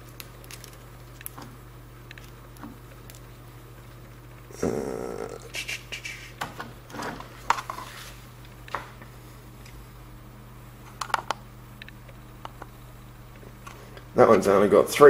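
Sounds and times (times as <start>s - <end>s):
steady low hum: 0.0s - 15.0s
scraping rustle: 7.0s - 8.3s.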